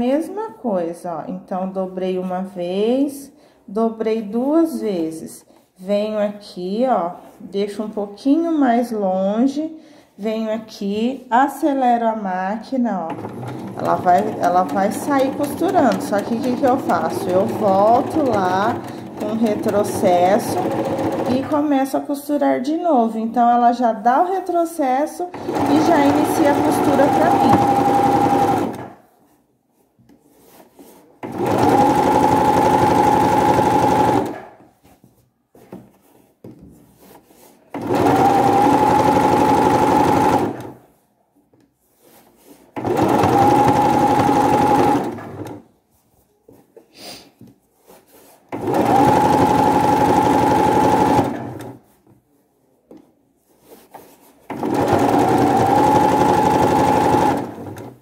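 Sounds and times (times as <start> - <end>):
sewing machine whining: 13.1 - 21.6, 25.3 - 29.0, 31.2 - 34.5, 37.7 - 40.8, 42.8 - 45.6, 48.5 - 51.8, 54.5 - 58.0.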